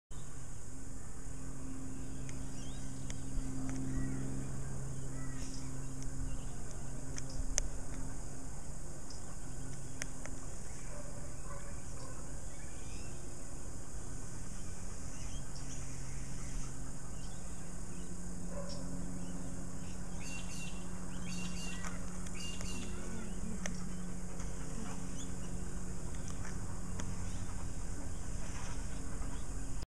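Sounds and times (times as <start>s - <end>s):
steady low hum: 0.1s - 29.9s
birds chirping and calling: 14.6s - 29.6s.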